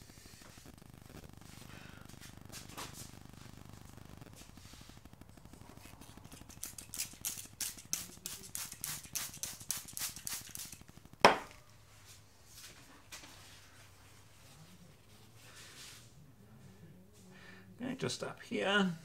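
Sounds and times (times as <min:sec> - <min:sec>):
spray bottle squirting: 0:05.8 - 0:11.0
sharp knock: 0:11.2 - 0:11.6.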